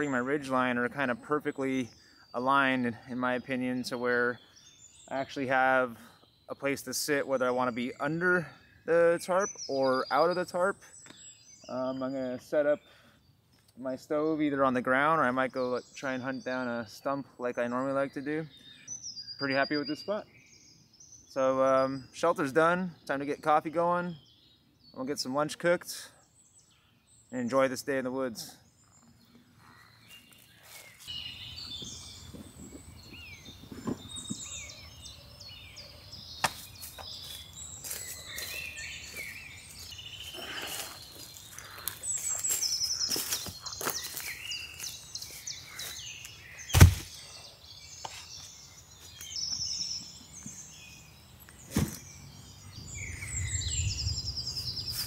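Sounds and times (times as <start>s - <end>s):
birds singing and chirping: 0.0s - 55.0s
loud thump: 46.7s - 47.2s.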